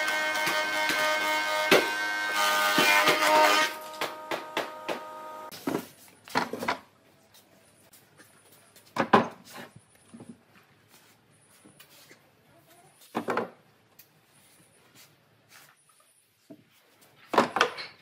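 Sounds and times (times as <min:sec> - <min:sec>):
thickness planer whining: 0:00.0 - 0:05.5.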